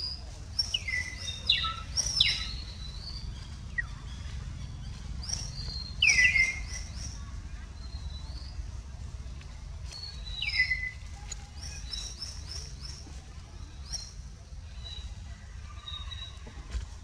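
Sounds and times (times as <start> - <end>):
low rumble: 0.0 - 12.0
birds chirping: 0.0 - 17.0.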